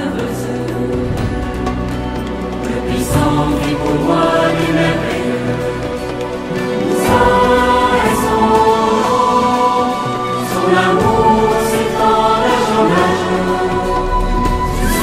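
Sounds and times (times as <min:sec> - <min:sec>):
choir singing held chords: 0:00.0 - 0:15.0.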